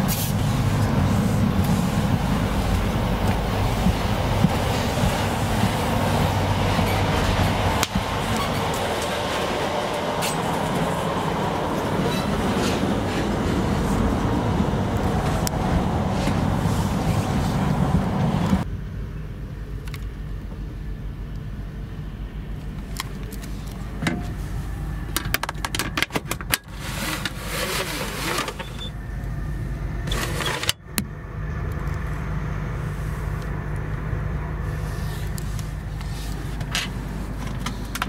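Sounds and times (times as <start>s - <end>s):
train low hum: 0.0s - 38.0s.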